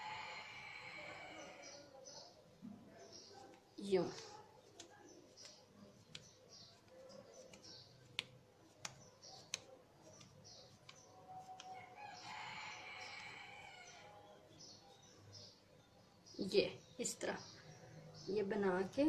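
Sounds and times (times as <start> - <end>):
hands pressing mashed potato: 3.3 - 13.4.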